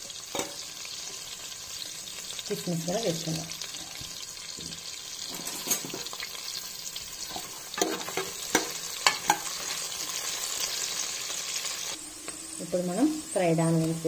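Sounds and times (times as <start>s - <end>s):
vegetables sizzling in oil: 0.0s - 14.0s
ladle scraping and knocking pot: 5.3s - 6.1s.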